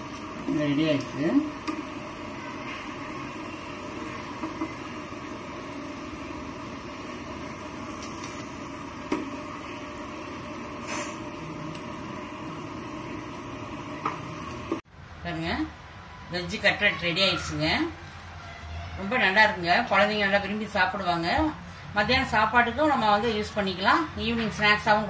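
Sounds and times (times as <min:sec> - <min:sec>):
food deep-frying in oil: 0:00.0 - 0:14.9.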